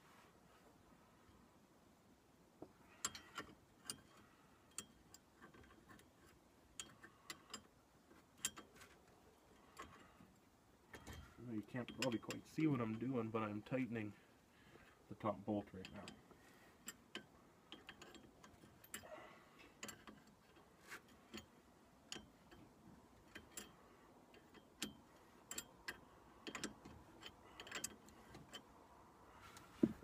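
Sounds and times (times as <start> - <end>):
wrench clicking: 24.4 - 28.6.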